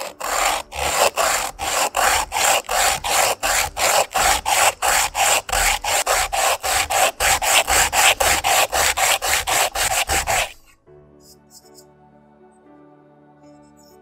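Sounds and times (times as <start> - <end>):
coconut shell rasping on sandpaper: 0.0 - 10.7
soft background music: 10.6 - 14.0.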